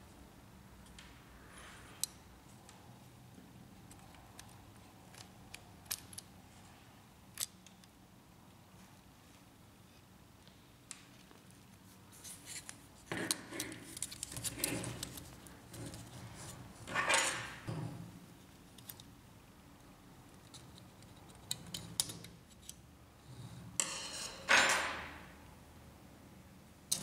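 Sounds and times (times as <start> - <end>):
clicks and scrapes handling parts: 3.8 - 7.9, 10.9 - 19.1, 20.3 - 22.8.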